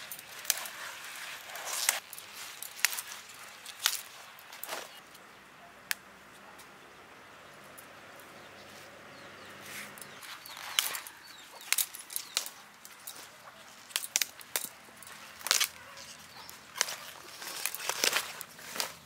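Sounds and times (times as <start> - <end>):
broccoli leaves rustling and crackling: 0.0 - 5.1, 9.6 - 19.0.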